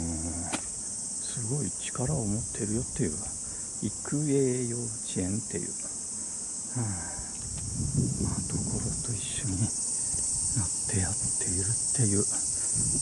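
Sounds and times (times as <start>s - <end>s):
insects shrilling: 0.0s - 13.0s
person speaking: 8.3s - 9.8s, 10.5s - 12.4s.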